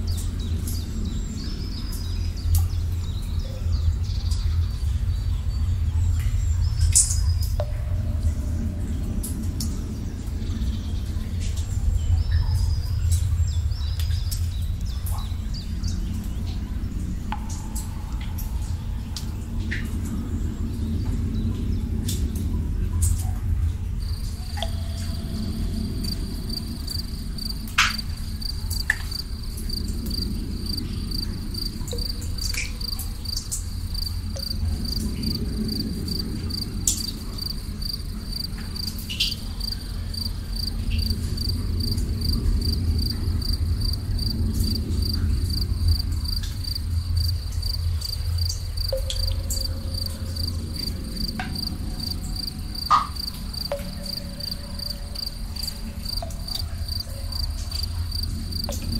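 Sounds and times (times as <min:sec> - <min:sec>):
low steady rumble: 0:00.0 - 0:58.9
water drips plinking: 0:00.0 - 0:58.9
crickets chirping: 0:23.9 - 0:58.9.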